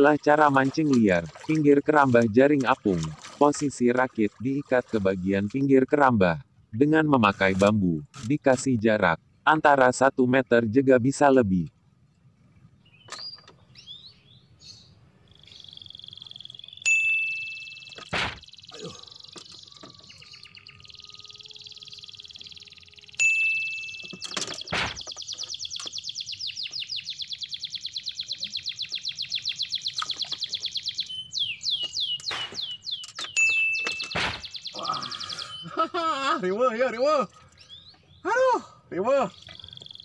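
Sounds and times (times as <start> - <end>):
bird chirps: 12.0 - 38.3, 38.9 - 40.0.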